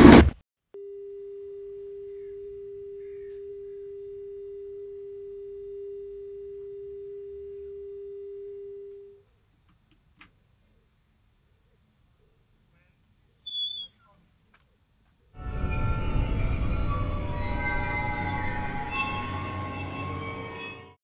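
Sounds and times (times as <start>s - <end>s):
telephone line tone: 0.8s - 9.2s.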